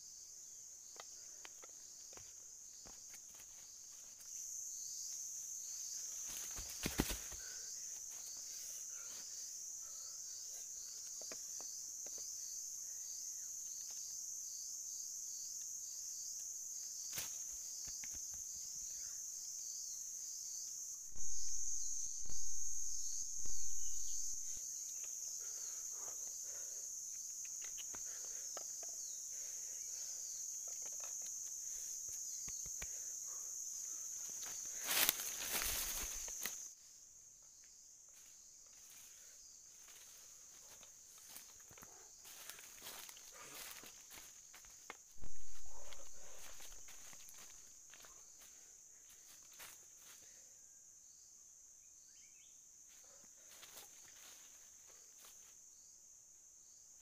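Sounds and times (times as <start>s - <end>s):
insect chorus buzzing: 0.0s - 57.0s
dry leaves rustling: 34.7s - 36.6s.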